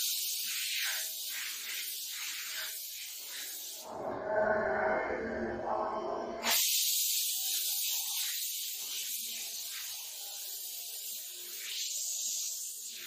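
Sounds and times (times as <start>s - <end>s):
spray gun hissing: 0.0s - 3.9s, 6.4s - 13.0s.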